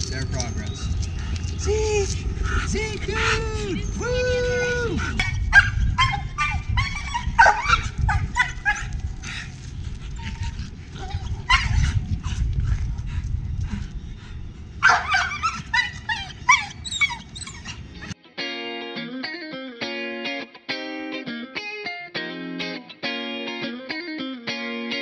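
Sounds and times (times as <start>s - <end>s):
wind rumble on microphone: 0.0s - 18.2s
dog barking and yelping: 5.0s - 12.6s, 14.8s - 18.2s.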